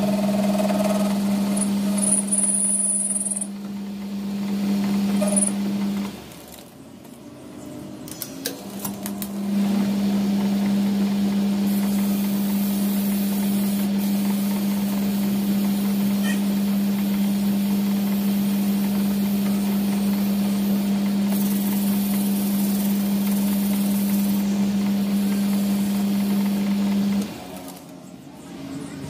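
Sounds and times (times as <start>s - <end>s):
abrasive paper hissing on copper: 11.7s - 26.0s.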